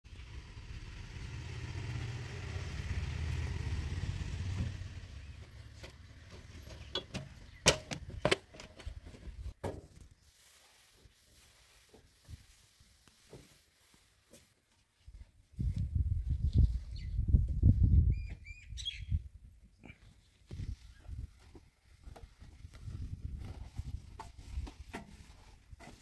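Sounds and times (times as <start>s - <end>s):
vehicle engine rumbling: 0.1s - 8.3s
knocks and clanks on metal: 5.8s - 8.9s.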